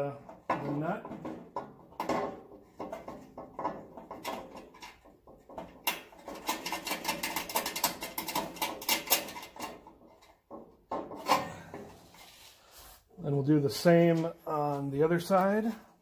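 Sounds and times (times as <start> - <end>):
metal hardware clicking and rattling: 0.2 - 12.0.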